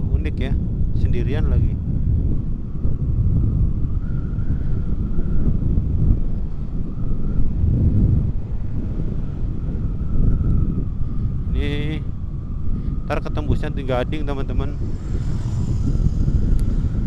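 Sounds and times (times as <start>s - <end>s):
wind buffeting microphone: 0.0s - 17.0s
faint scooter whine: 14.1s - 17.0s.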